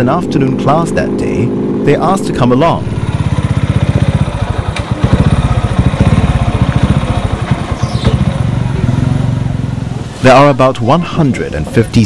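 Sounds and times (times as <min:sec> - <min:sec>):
small engine running: 0:02.8 - 0:09.5.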